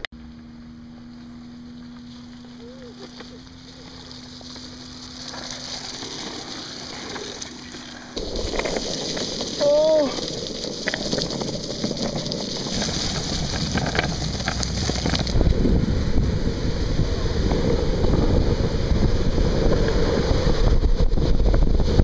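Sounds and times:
longboard wheels rolling on pavement: 0.3s - 22.0s
wind on microphone: 6.3s - 22.0s.

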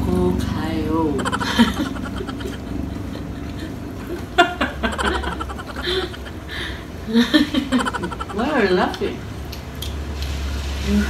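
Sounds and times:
person laughing: 1.1s - 8.6s.

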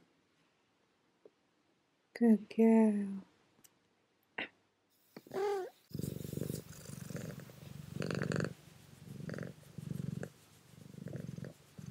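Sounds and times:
cat purring: 5.2s - 11.9s.

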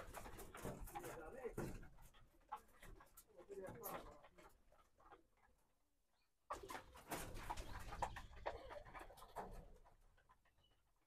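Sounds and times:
rustling and knocking: 0.0s - 5.2s.

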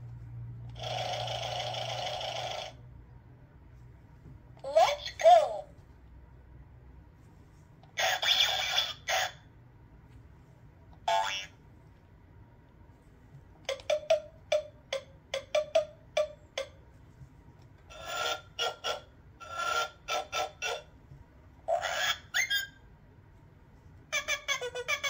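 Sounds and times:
toy speaker sound effects: 0.7s - 2.8s, 4.6s - 5.7s, 7.9s - 9.5s, 11.0s - 11.6s, 13.7s - 16.8s, 17.9s - 20.9s, 24.1s - 25.0s.

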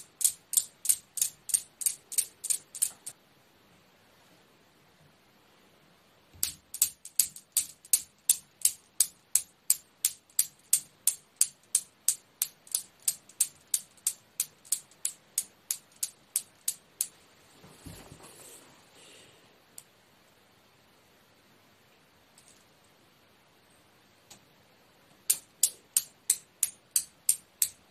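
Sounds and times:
metal balls clacking: 0.0s - 3.1s, 6.4s - 17.2s, 25.2s - 27.9s
soft handling noise: 17.1s - 19.0s.

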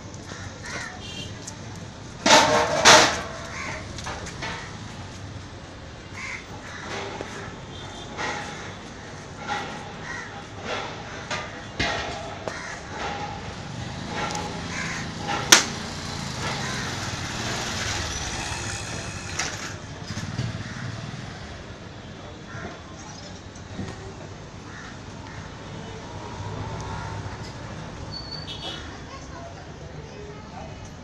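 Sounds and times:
street background noise: 0.0s - 31.0s
birds cawing: 0.2s - 1.1s, 3.4s - 4.0s, 6.2s - 7.0s, 10.0s - 11.3s, 12.4s - 12.9s, 14.6s - 15.3s, 16.5s - 17.2s, 24.7s - 25.6s.

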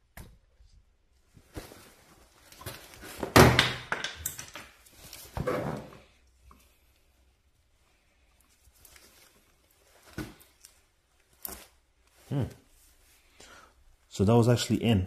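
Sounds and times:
hands rustling with a tool: 4.4s - 13.5s.

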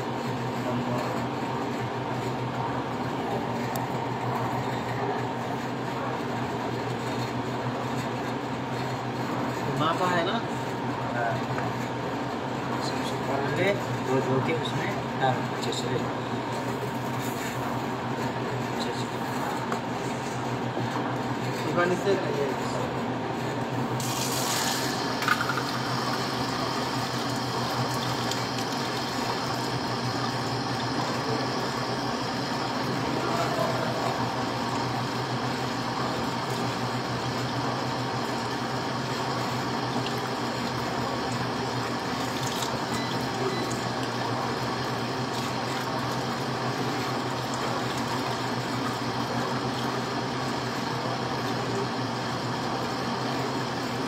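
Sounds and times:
machine hum: 14.9s - 54.0s.

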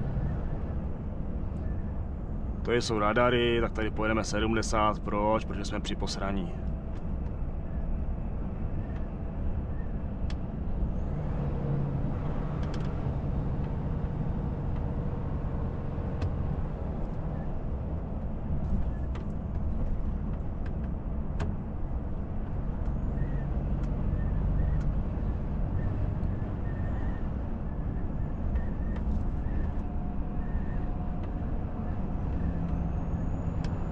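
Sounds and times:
road noise: 0.0s - 33.9s
truck engine drone: 0.0s - 33.9s.

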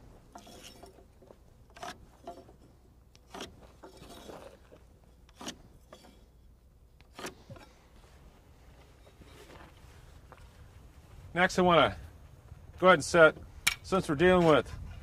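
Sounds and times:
light rubbing: 0.3s - 6.5s.

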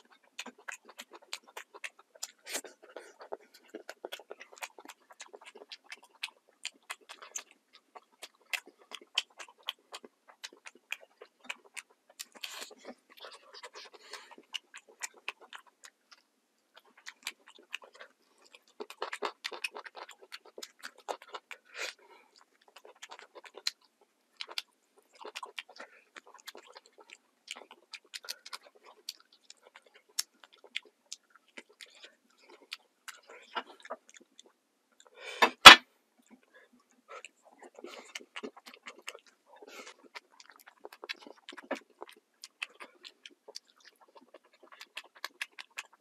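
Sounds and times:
person chewing with mouth open: 0.0s - 46.0s.

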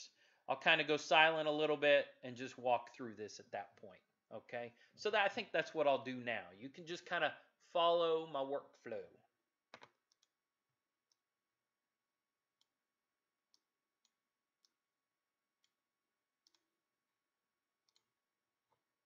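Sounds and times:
computer mouse clicks: 9.7s - 10.4s, 16.4s - 16.7s, 17.8s - 18.1s.

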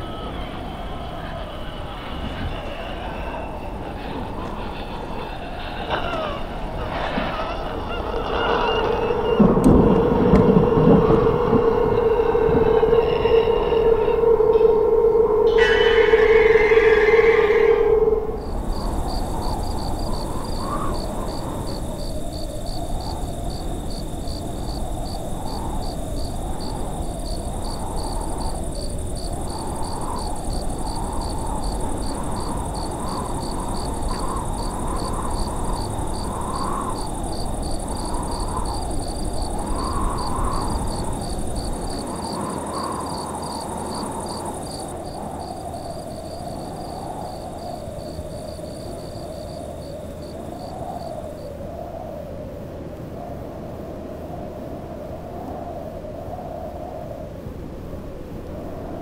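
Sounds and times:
rushing noise: 0.0s - 51.6s
crickets chirping: 0.0s - 59.0s
low rumble: 6.7s - 42.6s.

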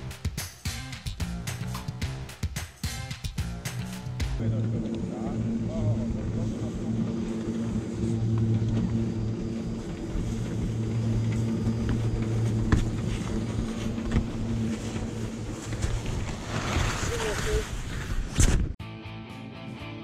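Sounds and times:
conveyor lift humming: 4.4s - 16.2s.

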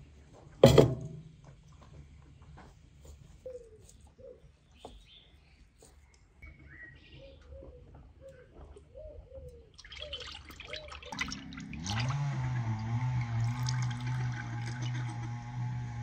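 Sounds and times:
bird calls: 3.4s - 11.2s
oil trickling and splashing: 9.7s - 16.0s.

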